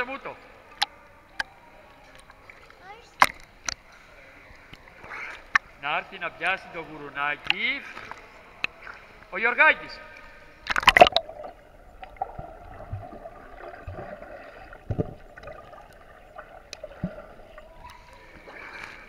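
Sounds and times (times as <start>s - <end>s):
muffled underwater sloshing and bubbling: 1.5s - 5.8s, 10.2s - 19.0s
water splashing: 9.9s - 19.0s.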